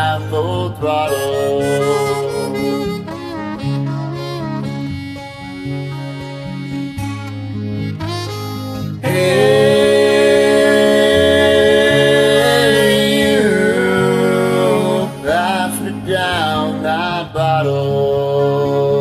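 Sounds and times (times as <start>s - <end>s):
person singing: 0.0s - 3.2s, 9.0s - 19.0s
karaoke backing track: 0.0s - 19.0s.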